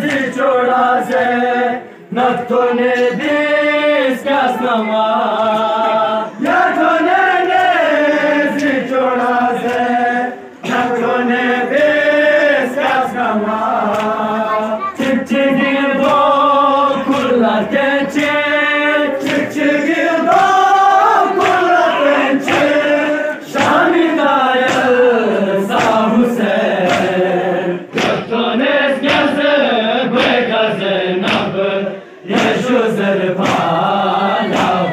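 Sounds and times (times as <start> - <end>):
men chanting in unison: 0.0 - 34.9
hand slaps on chest: 13.9 - 14.2, 24.6 - 25.0, 25.8 - 26.0, 26.9 - 27.2, 27.9 - 28.3, 29.0 - 29.4, 30.2 - 30.4, 31.2 - 31.6, 33.4 - 33.7.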